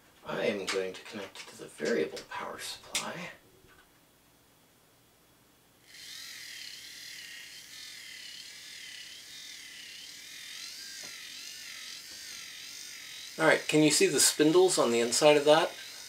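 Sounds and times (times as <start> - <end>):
small electric motor whining: 5.9 - 16.0.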